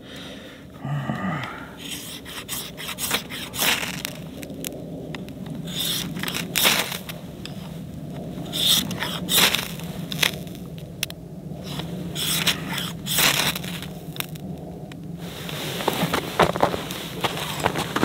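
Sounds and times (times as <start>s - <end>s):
knife scraping fire steel: 1.8s - 4.5s, 5.7s - 7.6s, 8.4s - 10.6s, 11.6s - 14.4s.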